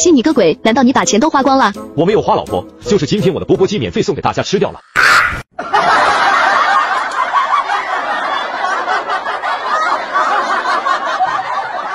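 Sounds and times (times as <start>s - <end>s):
people laughing: 5.6s - 11.9s.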